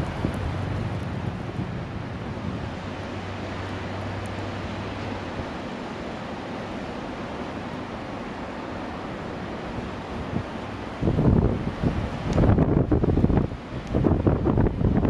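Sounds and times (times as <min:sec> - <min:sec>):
wind buffeting microphone: 0:00.0 - 0:04.4, 0:09.8 - 0:15.0.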